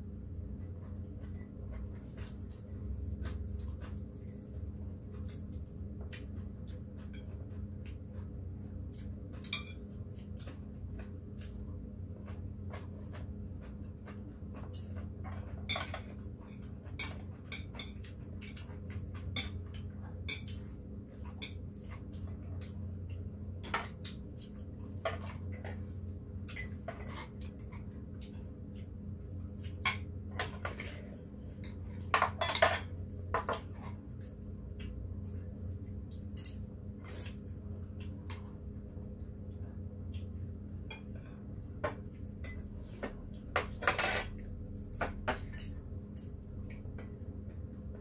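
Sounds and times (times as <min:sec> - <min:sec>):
low steady hum: 0:00.0 - 0:48.0
cutlery clinking on bowls: 0:09.4 - 0:09.9, 0:14.5 - 0:22.0, 0:26.5 - 0:27.9, 0:31.6 - 0:33.7, 0:36.3 - 0:36.7, 0:40.9 - 0:46.3.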